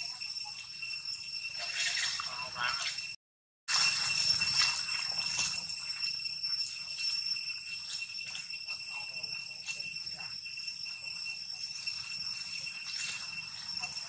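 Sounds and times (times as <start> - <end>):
high-pitched insect drone: 0.0 - 14.0
rustling leaves: 3.7 - 14.0.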